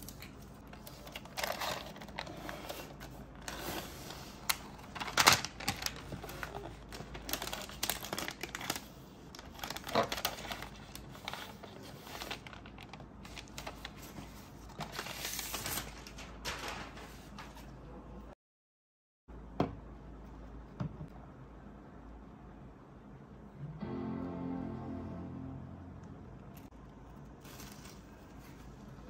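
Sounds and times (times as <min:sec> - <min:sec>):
packaging crinkling and rustling: 0:00.0 - 0:17.7, 0:27.1 - 0:29.0.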